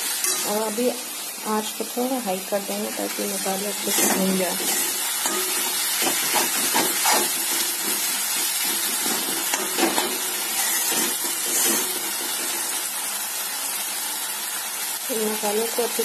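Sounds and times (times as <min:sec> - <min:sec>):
masala sizzling in hot oil: 0:00.0 - 0:16.0
spatula stirring and scraping: 0:02.8 - 0:12.7.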